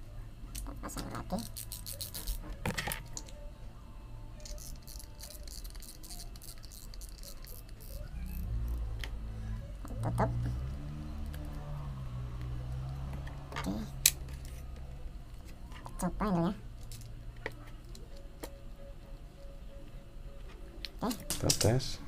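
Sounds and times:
low steady drone: 0.0 - 22.0
fishing reel parts clicking: 1.4 - 2.4, 4.4 - 8.0.

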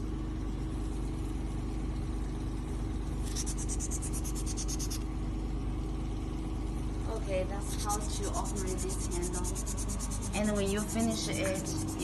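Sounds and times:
machine hum with constant tone: 0.0 - 12.0
rapid high hissing pulses: 3.3 - 5.0, 7.6 - 12.0.

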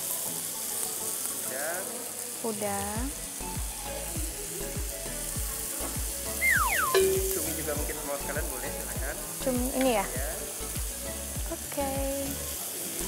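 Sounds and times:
meat sizzling on a grill pan: 0.0 - 13.0
falling tone: 6.4 - 7.8
short steady tone: 6.5 - 7.7.

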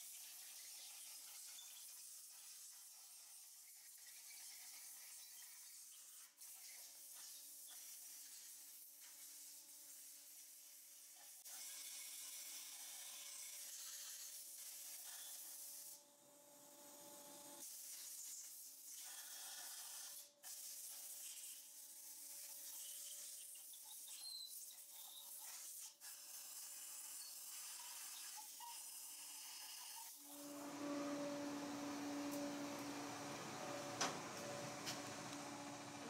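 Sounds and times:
compressed air hissing: 30.2 - 36.0.

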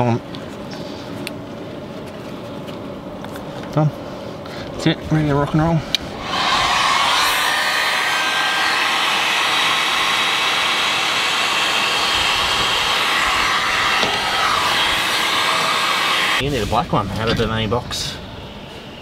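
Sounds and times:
heat gun fan blowing: 5.4 - 19.0.

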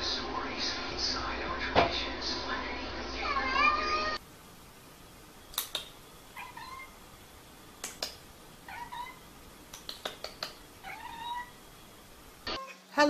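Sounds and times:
sharp clicks: 5.5 - 5.9, 9.7 - 10.6.

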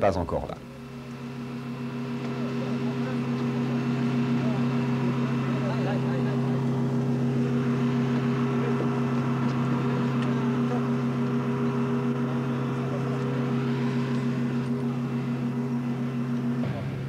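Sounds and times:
aircraft droning hum: 0.0 - 17.0
clicks of people moving: 9.4 - 10.7.

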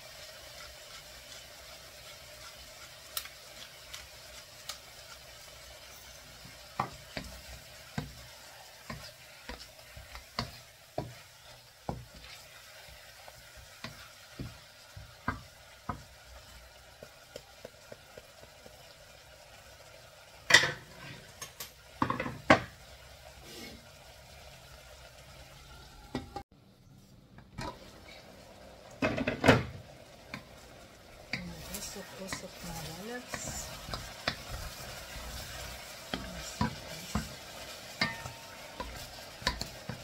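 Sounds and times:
chicken sizzling in a wok: 0.0 - 26.5, 27.5 - 40.0
wooden spatula scraping a pan: 0.3 - 16.5, 20.7 - 21.4, 23.4 - 23.9, 31.3 - 40.0.

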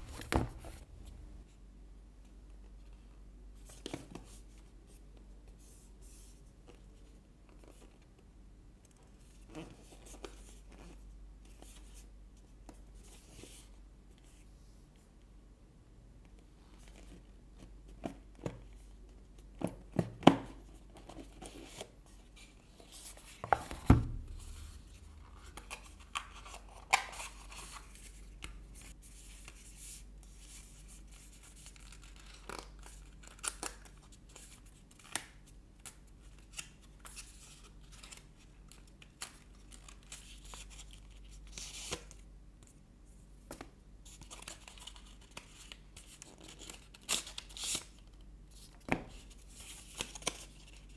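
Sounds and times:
heavy thump: 23.7 - 25.0.

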